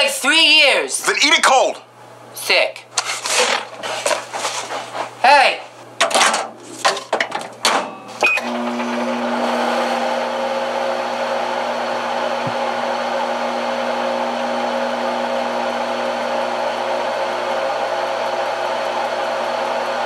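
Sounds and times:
microwave humming: 0:02.9 - 0:20.0
microwave beep: 0:07.8 - 0:09.1.

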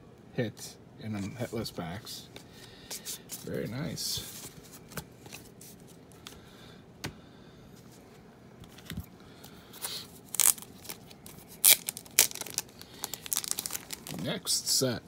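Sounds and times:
plastic sleeves crinkling: 0:09.8 - 0:14.5.

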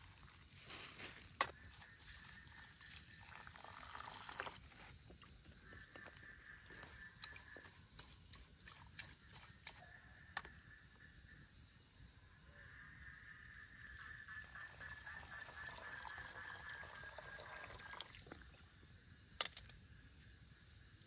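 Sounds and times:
water gurgling into metal pot: 0:02.4 - 0:04.7, 0:13.6 - 0:18.6.

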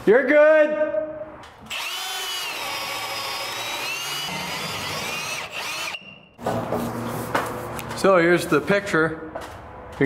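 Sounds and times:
cordless drill boring wood: 0:01.7 - 0:06.0.

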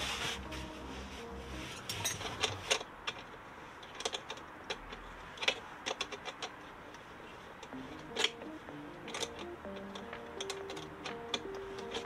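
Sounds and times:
socket tool clicking on nut: 0:07.6 - 0:12.0.

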